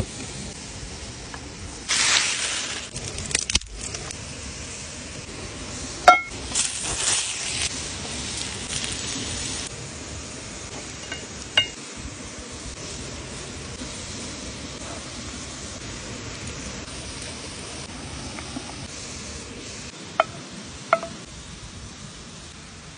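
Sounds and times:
food sizzling in pan: 0:00.0 - 0:22.9
metal frying pan clinking: 0:06.1 - 0:06.3, 0:11.0 - 0:11.8.

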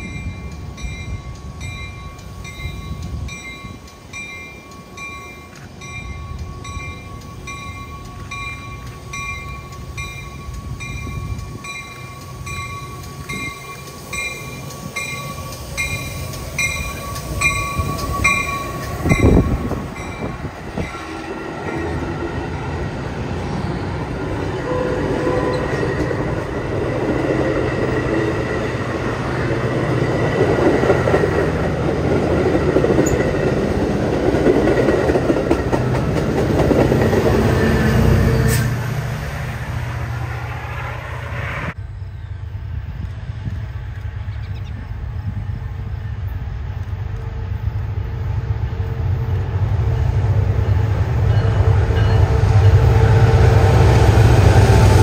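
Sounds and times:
crossing bell ringing: 0:00.0 - 0:22.8, 0:49.8 - 0:53.0
train coaches clattering: 0:00.0 - 0:41.6, 0:42.9 - 0:55.0
diesel locomotive passing: 0:00.0 - 0:55.0.

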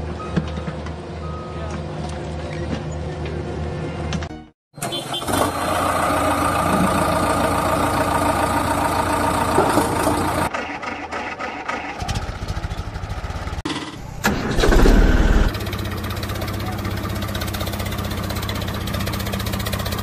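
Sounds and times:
engine running: 0:04.8 - 0:20.0
low chugging engine beat: 0:15.5 - 0:20.0.

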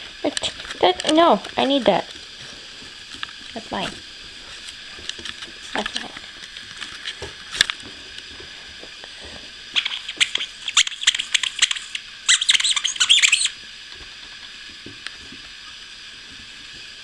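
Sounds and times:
steady hiss: 0:00.0 - 0:17.0
puppies squeaking: 0:09.8 - 0:13.6.

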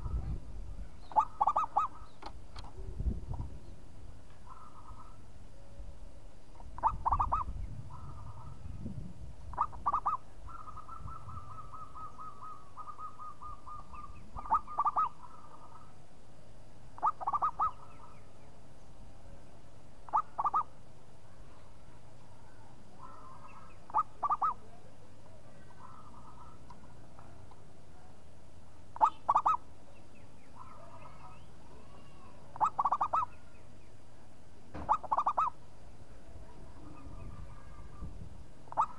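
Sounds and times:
dove cooing: 0:01.0 - 0:02.2, 0:04.5 - 0:05.2, 0:06.8 - 0:08.6, 0:09.5 - 0:15.9, 0:17.0 - 0:18.0, 0:20.1 - 0:20.7, 0:23.0 - 0:24.6, 0:29.0 - 0:29.6, 0:32.5 - 0:33.4, 0:34.8 - 0:35.6, 0:38.7 - 0:38.9.

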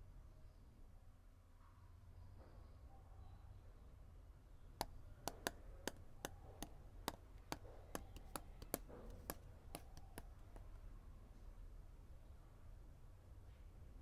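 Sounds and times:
pen clicking: 0:04.8 - 0:10.8.

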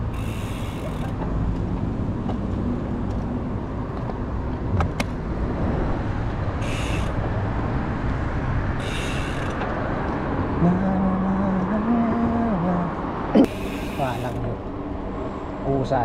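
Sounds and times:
bicycle freewheel ticking: 0:00.0 - 0:01.2, 0:06.6 - 0:07.2, 0:08.8 - 0:09.6, 0:13.5 - 0:14.5
wind and road rush: 0:00.0 - 0:16.0.

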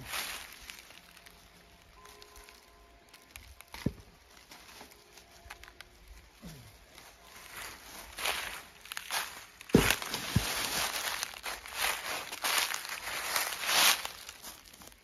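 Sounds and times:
sharp thud: 0:09.7 - 0:10.6.

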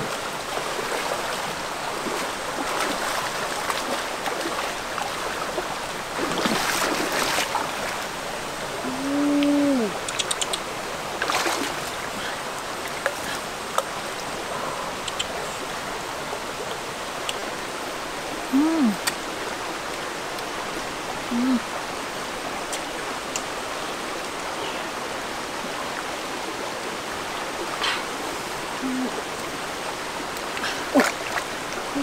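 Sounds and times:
splashes of wading: 0:00.0 - 0:09.0, 0:09.9 - 0:15.4, 0:27.2 - 0:32.0
rocky stream running: 0:00.0 - 0:32.0.

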